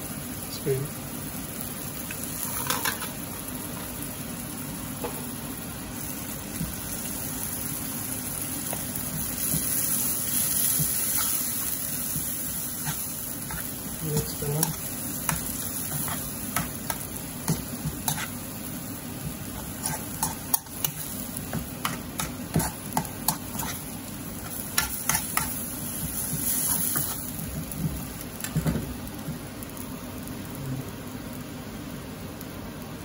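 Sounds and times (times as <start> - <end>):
curry sizzling: 0.0 - 33.0
metal spoon scraping a pan: 17.5 - 18.4, 19.6 - 21.1, 21.8 - 23.8.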